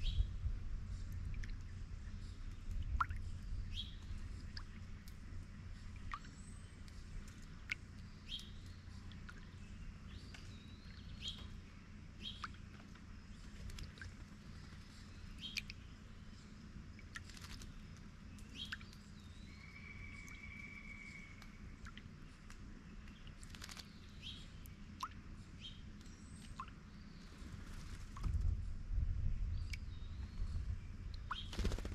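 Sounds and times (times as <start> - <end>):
low steady rumble: 0.0 - 31.9
songbirds chirping: 0.0 - 31.9
water dripping: 1.1 - 1.7, 2.5 - 9.6, 21.4 - 23.8, 25.0 - 25.2, 25.9 - 26.8.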